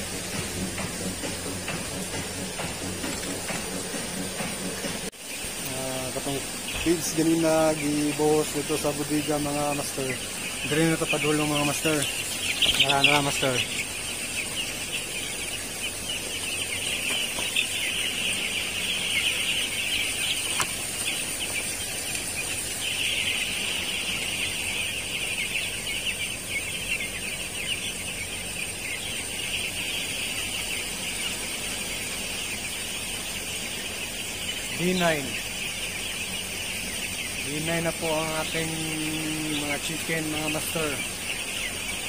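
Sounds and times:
chicks peeping: 0.0s - 42.0s.

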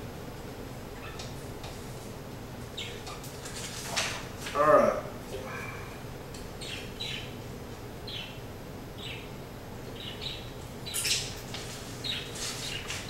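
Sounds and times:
paper rustling: 3.4s - 4.6s, 11.5s - 13.0s.

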